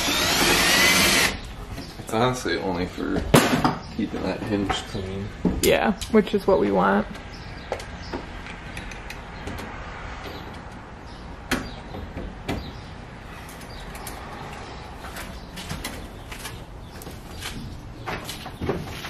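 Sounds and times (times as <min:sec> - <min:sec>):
metal bus door clicks and knocks: 0:11.5 - 0:12.8.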